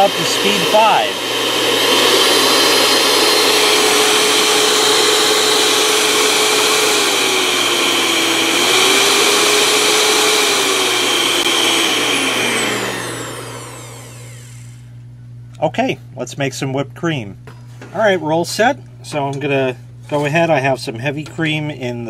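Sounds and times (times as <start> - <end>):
electric hand mixer whine: 0.0 - 14.9.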